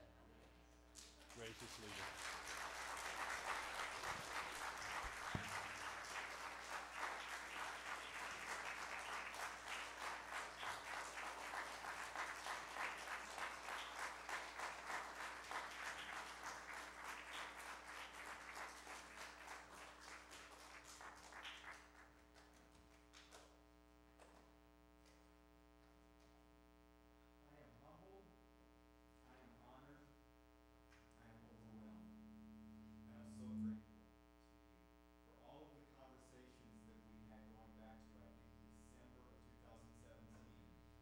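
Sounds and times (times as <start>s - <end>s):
congregation applauding: 1.0s - 23.4s.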